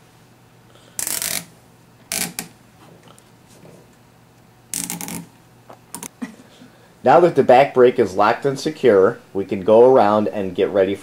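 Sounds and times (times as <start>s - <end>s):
cable tie ratcheting rasp: 1.0s - 1.5s, 2.1s - 2.6s, 4.7s - 6.1s.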